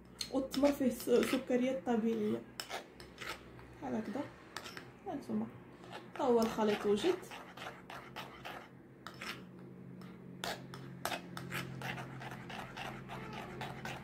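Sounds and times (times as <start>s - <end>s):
spoon scraping a ceramic bowl: 0.5s - 4.9s, 5.8s - 14.0s.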